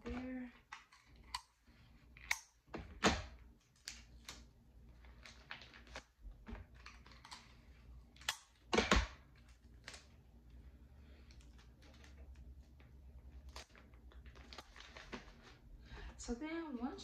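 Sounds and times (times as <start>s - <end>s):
tape and cardboard package crinkling: 3.4s - 15.9s.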